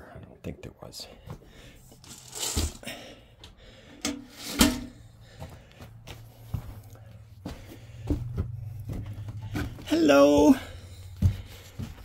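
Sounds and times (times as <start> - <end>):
metal feeder scraping: 4.1 - 5.0.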